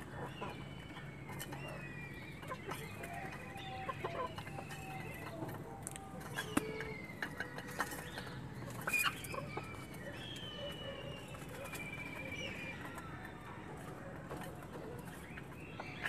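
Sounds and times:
hens clucking: 0.0 - 16.0.

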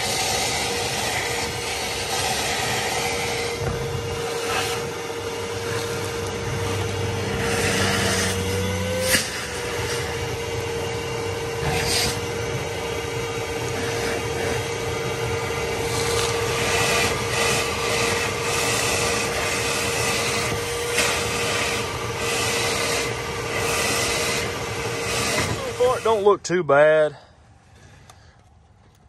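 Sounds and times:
nozzle scraping and sucking debris: 0.0 - 28.4
shop vacuum whining: 0.0 - 29.0.

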